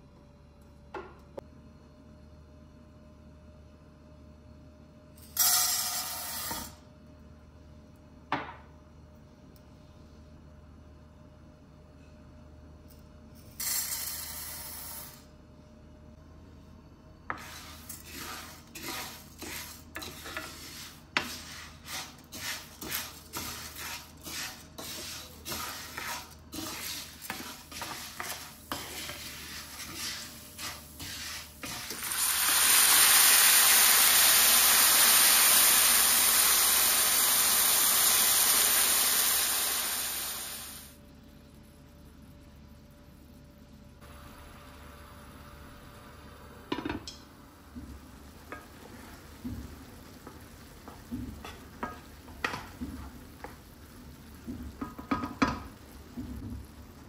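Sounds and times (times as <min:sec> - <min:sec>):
wooden spoon scraping pan: 0:17.3 - 0:32.0
water sizzling in hot pan: 0:26.6 - 0:40.9.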